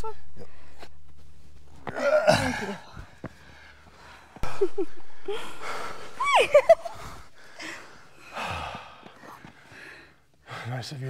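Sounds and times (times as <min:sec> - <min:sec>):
person breathing hard and gasping: 0:02.2 - 0:06.2, 0:06.8 - 0:10.6.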